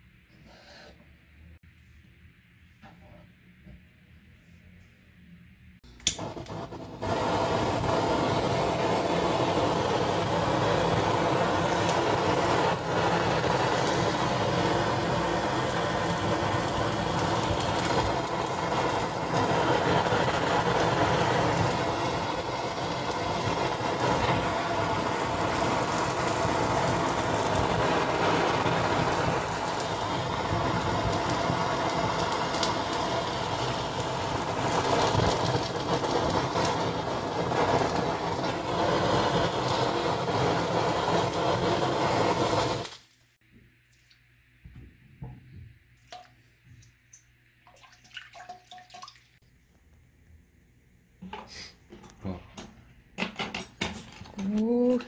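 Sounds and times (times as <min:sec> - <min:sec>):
blowtorch hissing: 0:06.0 - 0:43.1.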